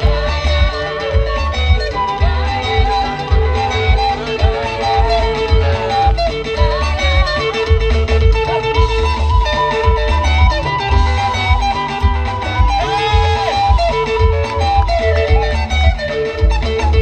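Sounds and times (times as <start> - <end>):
guitar: 0.0 - 17.0
strong bass beat: 0.0 - 17.0
wavering lead melody: 0.0 - 17.0.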